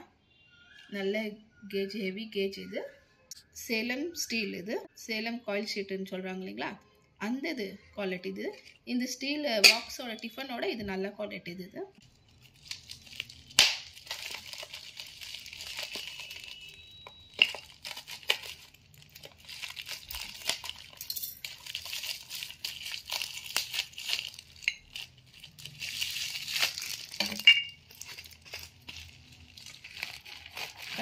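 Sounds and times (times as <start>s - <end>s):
bubble wrap crinkling: 12.0s - 31.0s
scissors cutting bubble wrap: 12.3s - 31.0s
steel tumblers clinking: 20.4s - 22.1s, 27.1s - 30.0s.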